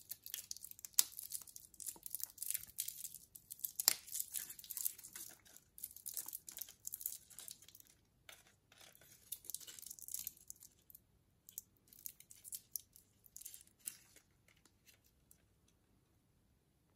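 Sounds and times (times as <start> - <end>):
paper and plastic tags crinkling: 0.0 - 10.7.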